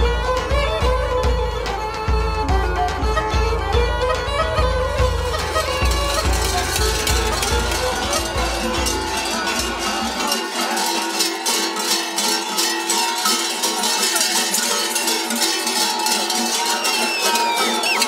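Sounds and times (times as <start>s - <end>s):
traditional music with deep beat: 0.0s - 18.0s
metal bells clanging: 4.4s - 18.0s.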